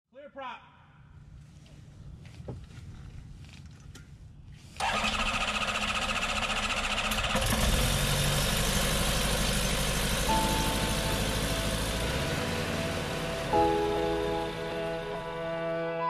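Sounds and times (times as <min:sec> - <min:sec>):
aircraft engine starting and idling: 0:04.6 - 0:16.0
propeller turning: 0:04.8 - 0:16.0.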